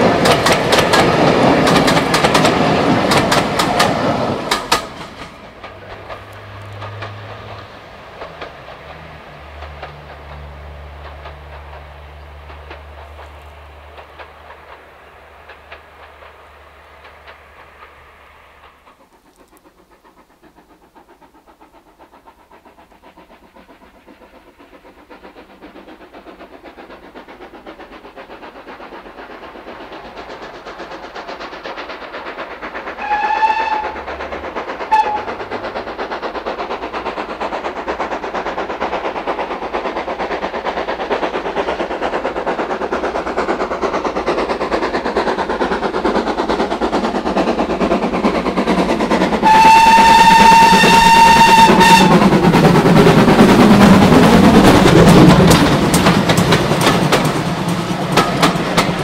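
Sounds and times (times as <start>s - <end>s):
steam locomotive exhaust beats: 0.0s - 59.0s
steam whistle blasts: 33.0s - 34.0s, 34.9s - 35.3s, 49.4s - 52.2s.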